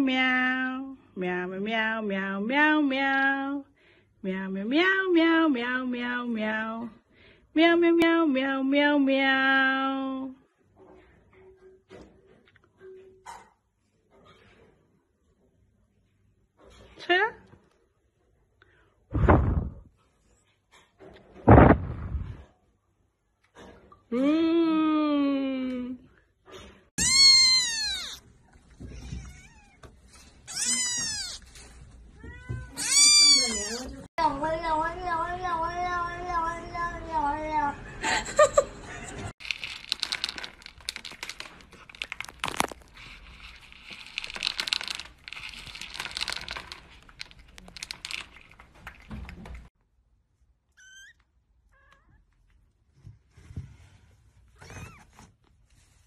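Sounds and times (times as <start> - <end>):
kitten meowing: 27.0 - 28.2, 30.5 - 31.5, 32.2 - 33.9
cat crunching dry kibble: 39.4 - 49.6
pellets rattling in plastic bowl: 39.4 - 49.6.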